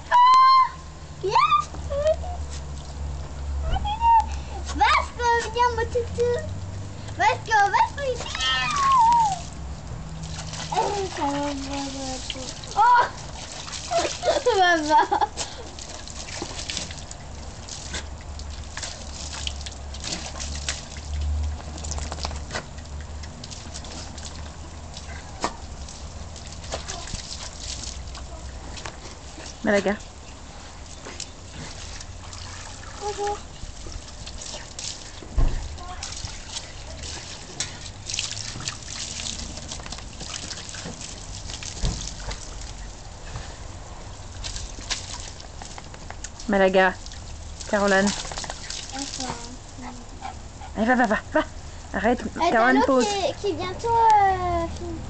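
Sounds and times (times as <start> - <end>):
dog splashing in water: 3.9 - 53.3
dull thump: 35.3 - 35.7, 41.8 - 42.1.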